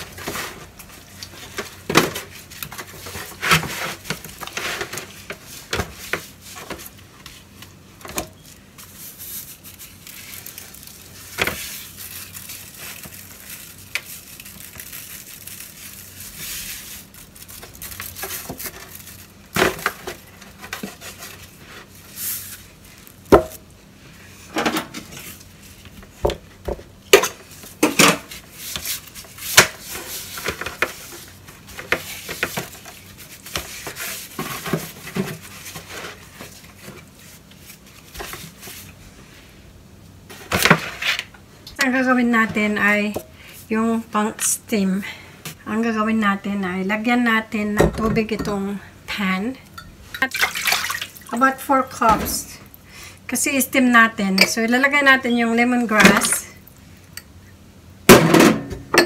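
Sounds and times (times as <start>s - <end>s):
foil pan crinkling and knocking: 0.0s - 23.7s, 24.8s - 39.0s.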